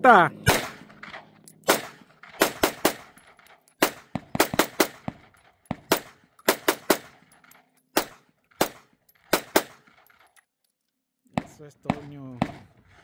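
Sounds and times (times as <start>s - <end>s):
gunshots in rapid clusters: 0.1s - 3.2s, 3.8s - 7.3s, 8.0s - 10.0s, 11.4s - 13.0s.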